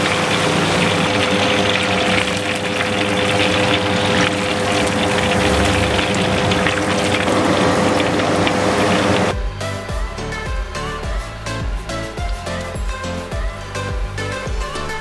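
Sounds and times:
oil sizzling and crackling: 0:00.0 - 0:09.8
constant pitch hum: 0:00.0 - 0:15.0.

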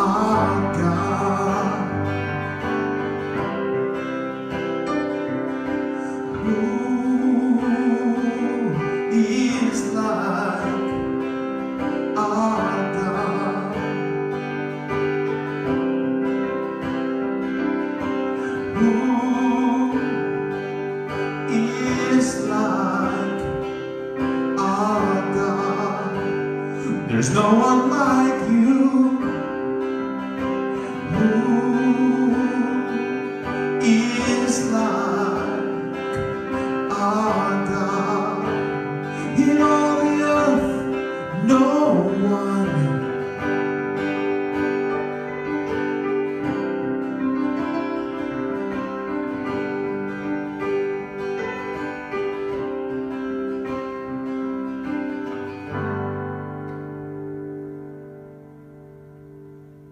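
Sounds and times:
worship band playing slow song: 0:00.0 - 0:53.2.

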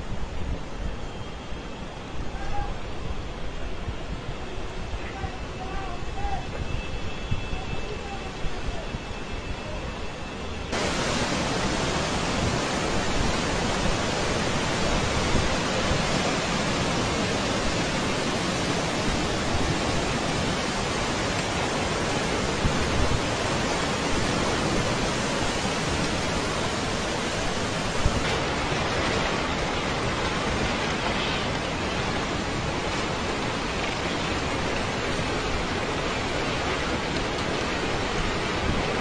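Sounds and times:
heavy rain and floodwater rushing: 0:00.0 - 0:39.0.

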